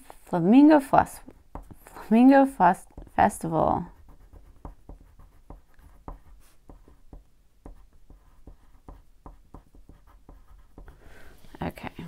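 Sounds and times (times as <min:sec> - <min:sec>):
crayon scratching on paper: 0:03.0 - 0:11.2.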